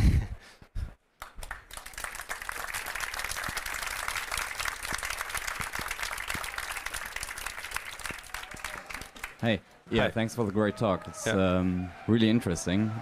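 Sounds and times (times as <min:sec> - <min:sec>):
audience applauding: 0:01.2 - 0:09.5.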